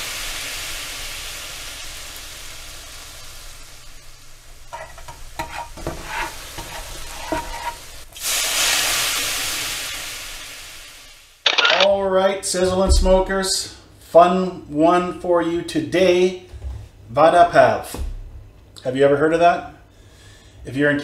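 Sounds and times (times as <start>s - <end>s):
sizzling and crackling: 0.0s - 11.9s
pops: 11.5s - 11.9s.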